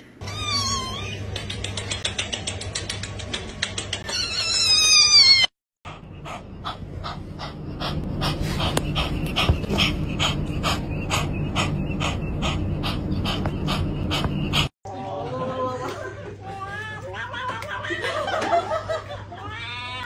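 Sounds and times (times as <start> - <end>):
cat yowling: 0.2 - 1.2, 4.1 - 5.5
kitten panting rapidly: 5.9 - 14.7
low steady hum: 5.9 - 14.7.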